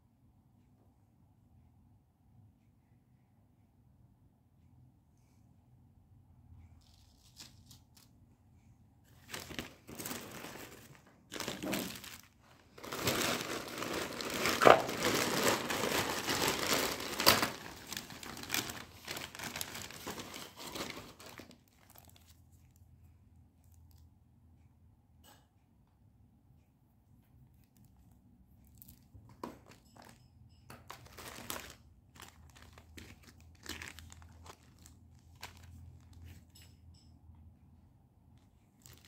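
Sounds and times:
packaging crinkling and tearing: 0:06.8 - 0:08.1, 0:09.2 - 0:22.4, 0:30.9 - 0:36.4, 0:38.8 - 0:39.0.

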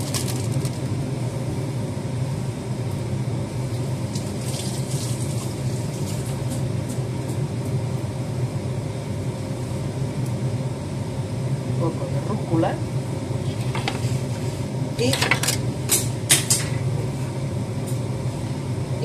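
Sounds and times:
leaves rustling into bowl: 0:00.0 - 0:01.0, 0:04.1 - 0:06.6
steady low hum: 0:00.0 - 0:19.0.

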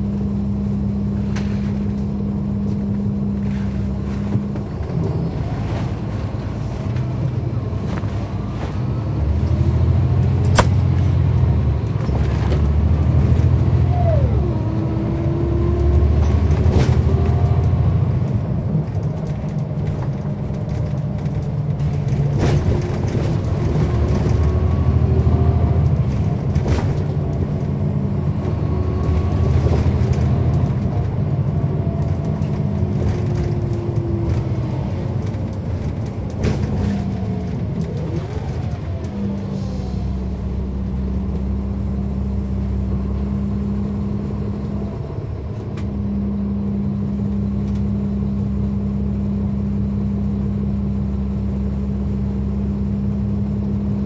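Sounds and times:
bus diesel engine: 0:00.0 - 0:54.0
bus body knocks and rattles: 0:01.2 - 0:13.8, 0:15.2 - 0:39.1.

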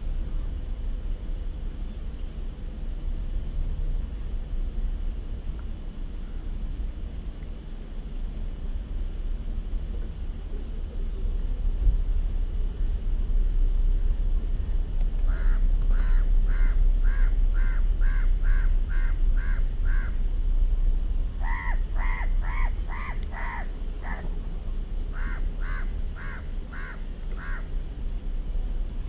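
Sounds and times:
crow cawing: 0:15.3 - 0:20.2, 0:21.4 - 0:24.3, 0:25.1 - 0:27.7.

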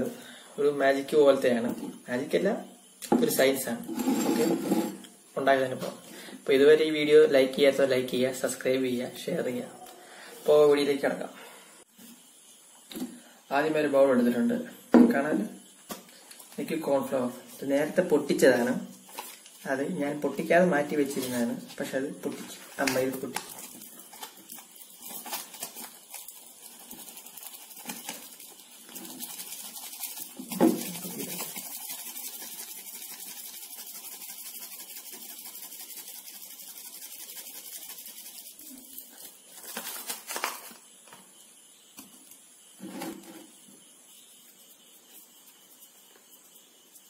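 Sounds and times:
powder pouring hiss: 0:09.8 - 0:47.0.

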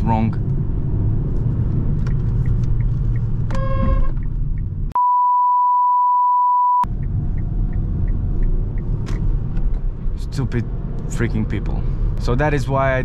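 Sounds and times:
car cabin road rumble: 0:00.0 - 0:05.0, 0:06.8 - 0:13.0
censor bleep: 0:05.0 - 0:06.9
short pitched beep: 0:05.0 - 0:06.9
faint regular ticking: 0:06.9 - 0:09.0.

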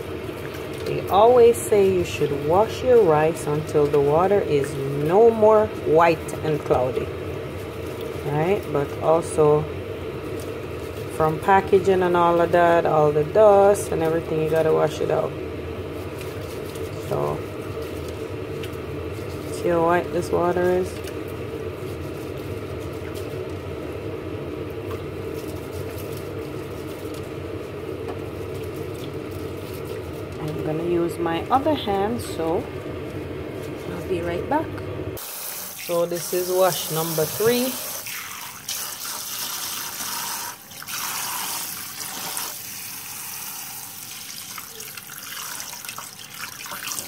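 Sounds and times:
steady low hum: 0:00.0 - 0:35.2
water splashing and dripping: 0:35.2 - 0:43.0, 0:43.9 - 0:47.0
tap water pouring into metal bowl: 0:37.8 - 0:47.0.

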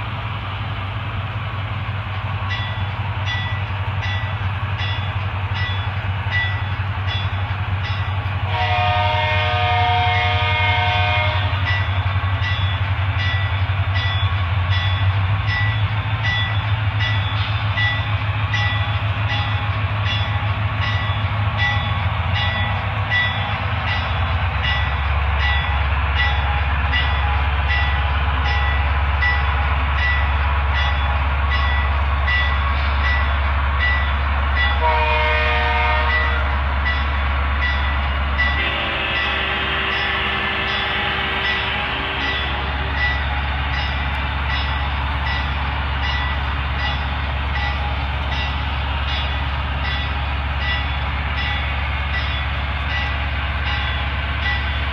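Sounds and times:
diesel locomotive engine rumble: 0:00.0 - 0:54.9
multi-chime train horn: 0:08.4 - 0:12.0, 0:34.6 - 0:37.0, 0:37.8 - 0:44.7.

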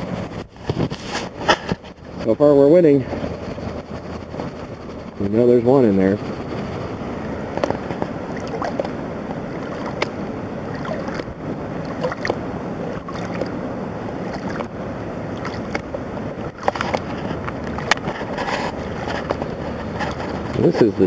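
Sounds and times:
water sloshing in a plastic pan: 0:07.6 - 0:13.6, 0:14.2 - 0:14.8, 0:15.4 - 0:15.9, 0:16.5 - 0:20.6.

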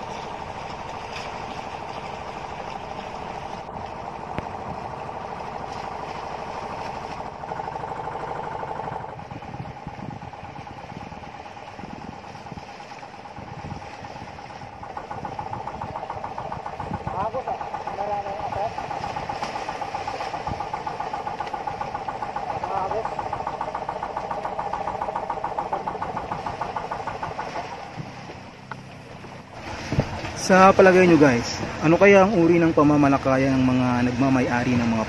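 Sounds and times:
boat engine chugging: 0:00.0 - 0:35.0.

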